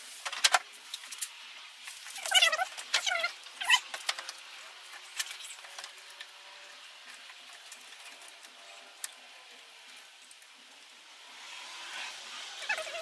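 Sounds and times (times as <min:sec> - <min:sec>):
plastic squeaking on plastic: 0:02.0 - 0:06.2, 0:12.6 - 0:13.0.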